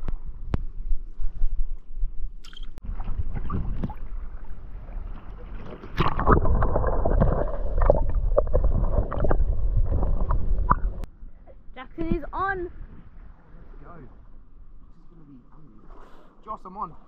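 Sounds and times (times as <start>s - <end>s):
water noise: 0.0s - 17.0s
bubbles: 2.5s - 11.1s
underwater rush and gurgling: 2.8s - 11.1s.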